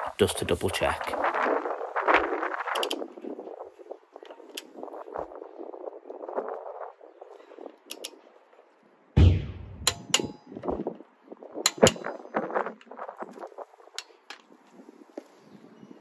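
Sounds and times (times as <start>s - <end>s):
heavy knock: 9.2s - 10.1s.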